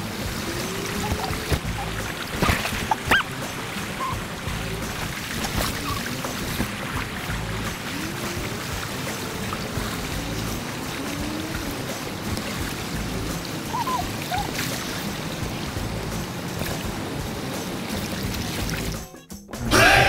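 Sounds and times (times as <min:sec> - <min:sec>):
river current rushing: 0:00.0 - 0:19.0.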